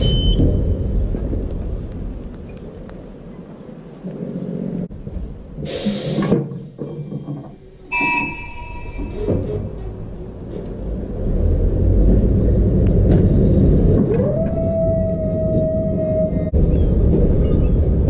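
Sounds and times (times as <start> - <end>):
tram low rumble: 0.0 - 18.0
short metallic ring: 7.9 - 9.3.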